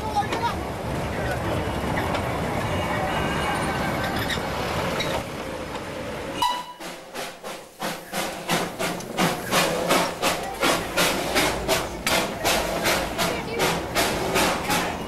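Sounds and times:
steam locomotive chuffing: 6.4s - 15.0s.

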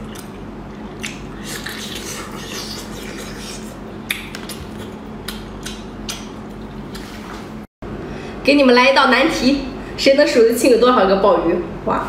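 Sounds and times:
mouth chewing with wet smacking: 0.0s - 6.8s.

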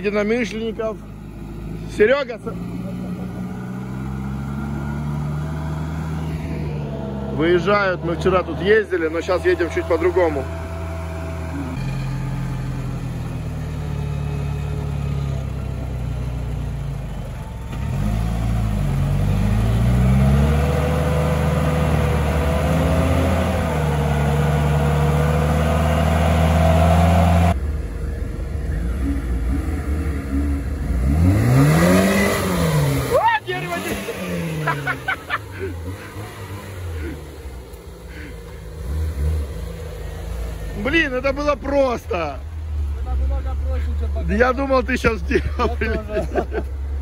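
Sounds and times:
car engine pulling under load: 0.0s - 47.0s
engine revving: 0.0s - 47.0s.

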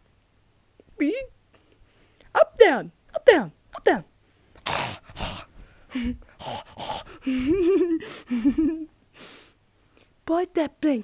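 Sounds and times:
breathy puffs: 4.5s - 9.6s.

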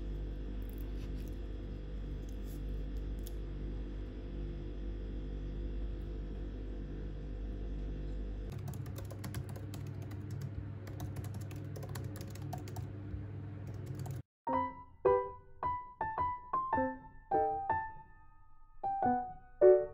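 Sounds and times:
low steady hum: 0.0s - 14.2s
laptop keyboard typing: 8.5s - 12.9s, 13.6s - 14.2s
piano notes: 13.9s - 19.9s.

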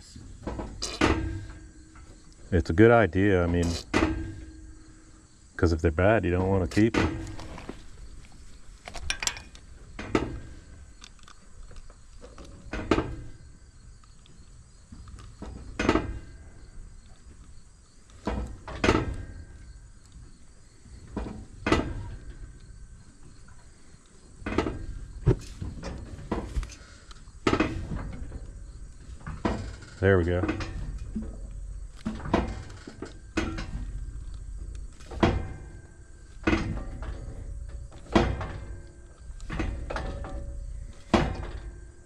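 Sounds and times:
metal clanks and knocks: 0.3s - 5.0s, 6.3s - 11.0s, 12.2s - 13.5s, 14.9s - 16.7s, 18.2s - 19.8s, 21.0s - 22.6s, 24.4s - 42.0s.

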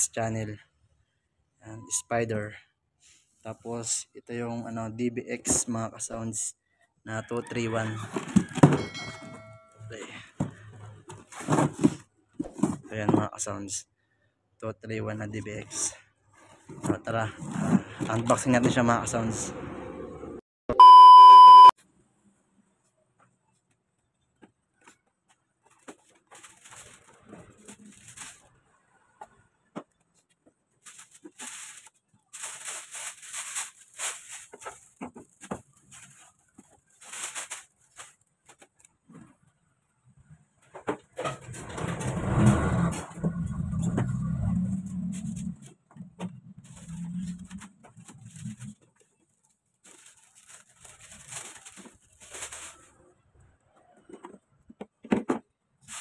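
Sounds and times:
cardboard boxes rustling: 10.5s - 13.3s, 25.6s - 28.5s, 30.8s - 38.7s, 49.8s - 52.9s
vehicle engine passing by: 19.2s - 20.4s, 41.8s - 45.5s
steady beep tone: 20.7s - 21.8s.

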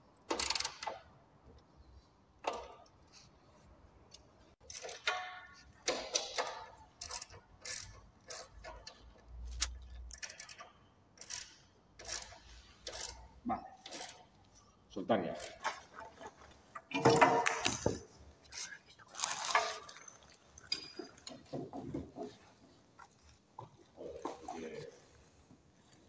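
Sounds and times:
metallic clicks and clinks: 4.6s - 13.2s.

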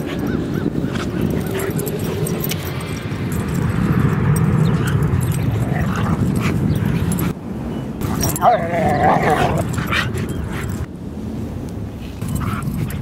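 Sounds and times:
dogs whimpering and yipping: 0.0s - 7.4s, 8.0s - 10.9s
continuous low rumble: 0.0s - 13.0s.

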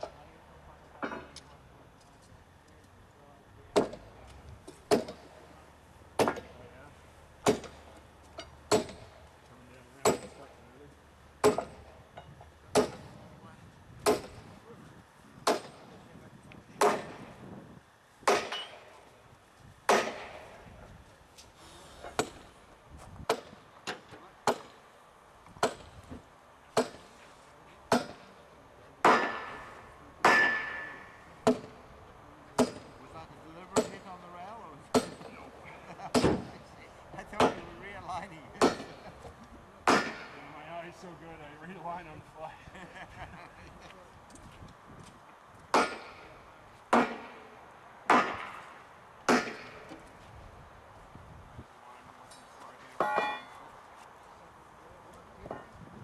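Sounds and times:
track tools striking: 0.0s - 3.0s, 3.7s - 13.3s, 14.0s - 14.8s, 15.4s - 17.5s, 18.2s - 19.2s, 19.8s - 20.6s, 21.3s - 28.4s, 29.0s - 41.1s, 45.7s - 50.2s, 52.2s - 54.1s
maul striking railway spike: 3.7s - 4.1s, 4.7s - 5.3s, 6.2s - 6.6s, 7.4s - 9.2s, 10.0s - 10.4s, 11.4s - 11.9s, 12.7s - 13.0s, 14.0s - 14.5s, 15.4s - 15.9s, 16.8s - 17.2s, 18.2s - 18.9s, 19.9s - 20.5s, 22.1s - 22.5s, 23.3s - 24.8s, 25.6s - 26.0s, 26.7s - 27.1s, 27.9s - 28.3s, 29.0s - 31.8s, 32.6s - 33.0s, 33.8s - 34.0s, 34.9s - 35.3s, 36.1s - 36.5s, 38.6s - 39.0s, 39.8s - 40.4s, 45.7s - 46.3s, 46.9s - 47.4s, 48.1s - 48.7s, 49.3s - 50.0s, 53.0s - 53.6s.

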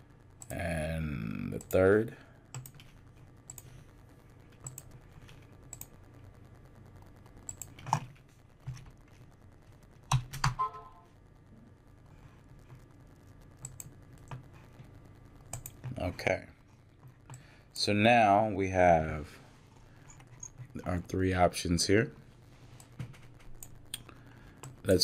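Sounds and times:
computer keyboard keystrokes: 4.6s - 4.9s, 15.5s - 16.0s.

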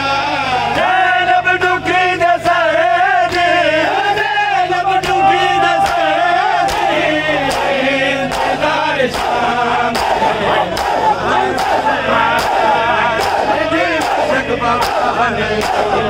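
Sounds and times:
men chanting in unison: 0.0s - 16.0s.

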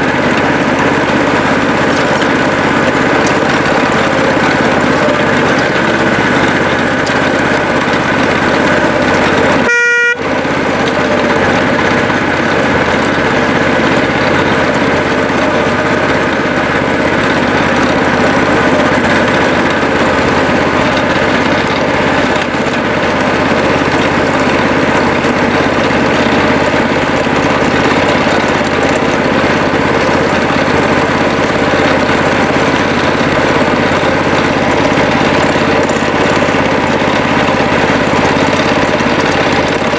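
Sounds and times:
small locomotive engine running: 0.0s - 39.9s
train horn toot: 9.6s - 10.3s.

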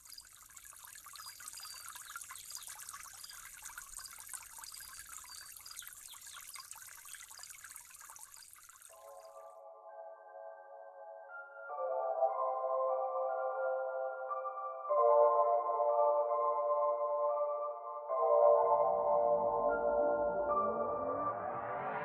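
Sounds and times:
water hiss with tiny ticks: 0.0s - 9.0s
soft synth chords: 9.0s - 22.0s.

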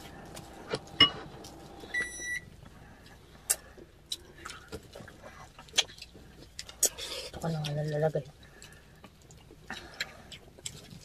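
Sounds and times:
electronic beep: 1.9s - 2.5s.

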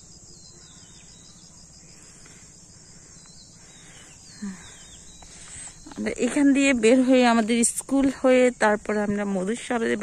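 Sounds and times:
faint bird chirps: 0.0s - 7.3s
insects chirring: 0.0s - 10.0s.

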